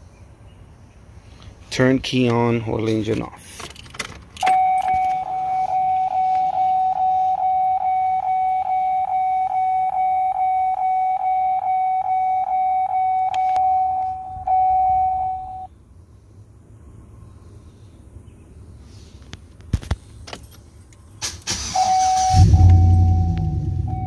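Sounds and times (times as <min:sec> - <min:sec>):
dashboard warning chime dinging: 0:04.4 - 0:15.7, 0:21.8 - 0:24.0.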